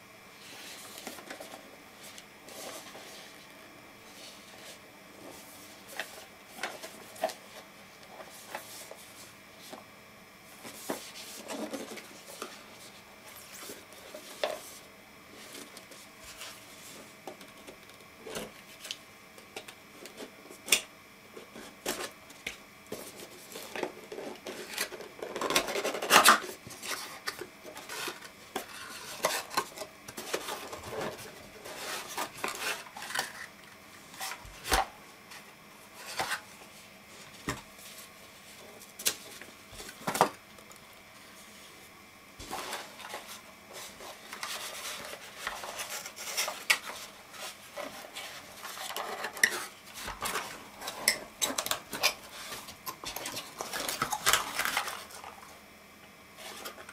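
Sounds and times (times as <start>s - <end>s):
cardboard scraping and rustling: 10.5s - 14.8s, 22.9s - 40.4s, 42.4s - 55.5s.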